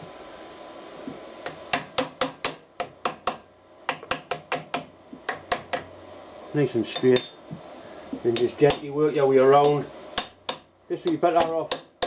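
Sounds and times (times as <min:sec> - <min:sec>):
hammer tapping metal drift: 0:09.6 - 0:12.0.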